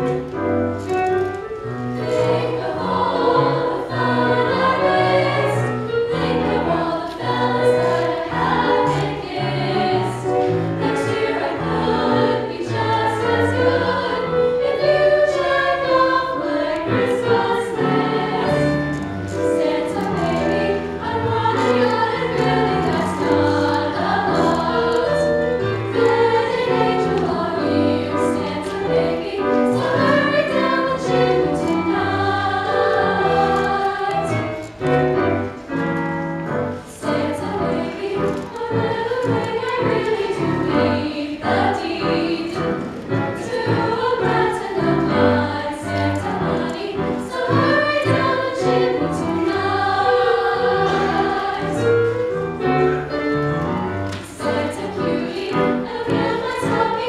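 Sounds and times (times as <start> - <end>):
choir singing: 1.6 - 57.0.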